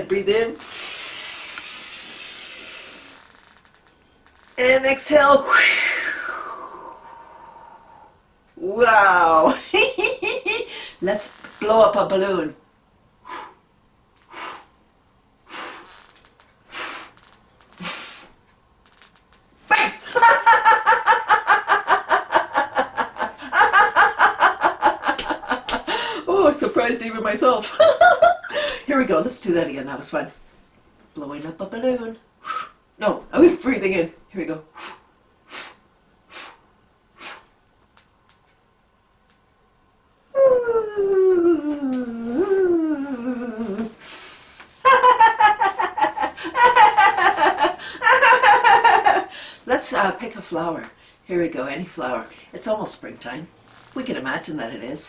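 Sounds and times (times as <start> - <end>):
breaths blown into balloon: 0.6 - 3.3, 5.5 - 8.2, 34.7 - 37.5
breath puffs into balloon: 0.6 - 3.4, 16.7 - 17.2
balloon deflating whine: 0.6 - 4.5
woman laughing high-pitched: 19.7 - 26.1, 44.8 - 49.3.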